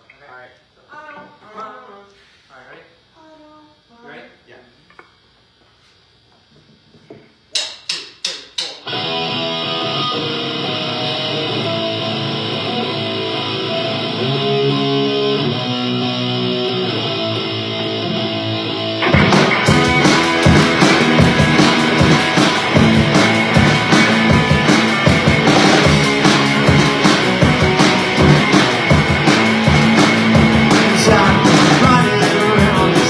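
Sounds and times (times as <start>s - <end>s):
distorted electric guitar riff: 8.7s - 33.0s
rock band playing: 8.8s - 33.0s.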